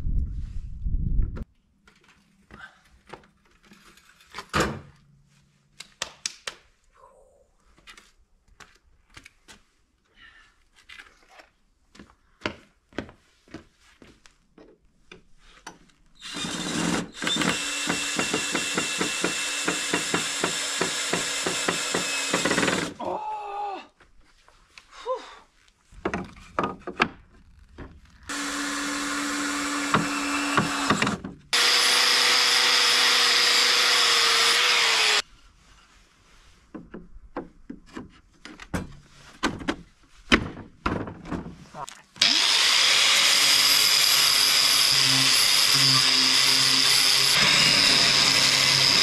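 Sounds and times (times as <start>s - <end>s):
electric drill driving a screw: 16.2s - 22.9s, 28.3s - 35.2s, 42.2s - 49.0s
clicks and knocks of handling wood: 25.7s - 28.3s, 36.6s - 42.0s.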